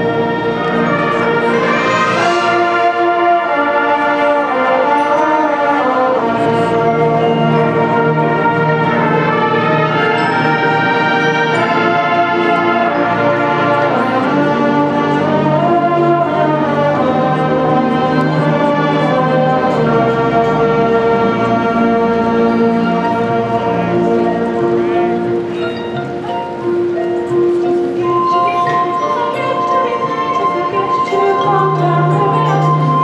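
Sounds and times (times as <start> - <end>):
marching band playing slow chords: 0.0 - 33.0.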